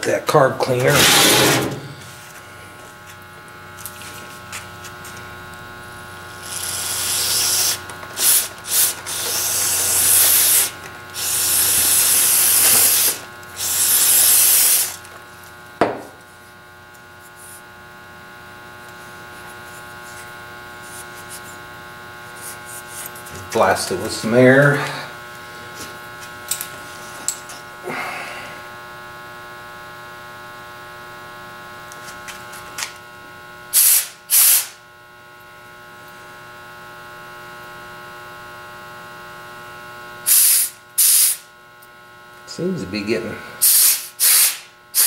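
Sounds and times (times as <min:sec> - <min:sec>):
steady electrical hum: 0:00.0 - 0:45.0
aerosol spray hissing: 0:06.4 - 0:15.0, 0:33.8 - 0:34.7, 0:40.3 - 0:41.4, 0:43.6 - 0:45.0.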